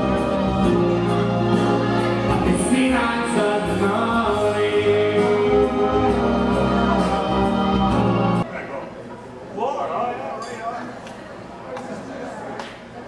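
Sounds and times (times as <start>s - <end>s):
person singing: 0.0s - 8.4s
keyboard accompaniment: 0.0s - 8.5s.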